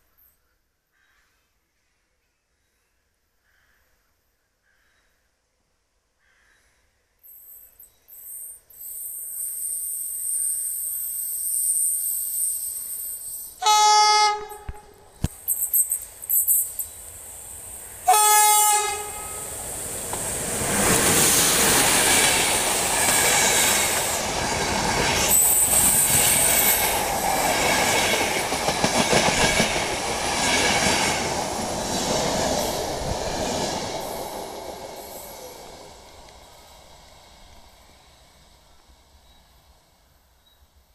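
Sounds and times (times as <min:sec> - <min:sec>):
electric locomotive whine: 0:08.1 - 0:40.8
train rushing past: 0:10.2 - 0:40.1
train horn blasts: 0:13.6 - 0:15.0, 0:18.0 - 0:19.5.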